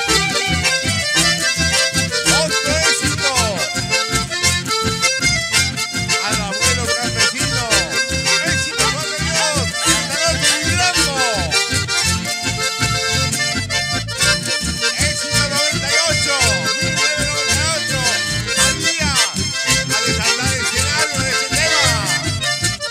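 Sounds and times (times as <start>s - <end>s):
live band with accordions: 0.0s - 22.9s.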